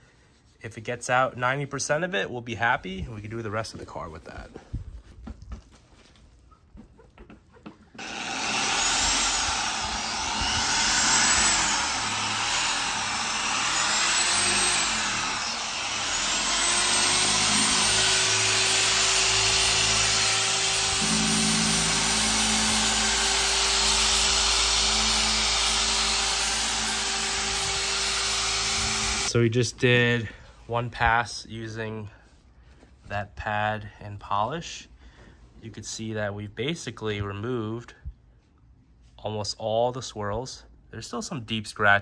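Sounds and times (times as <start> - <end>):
car polisher running: 8.0 - 29.3.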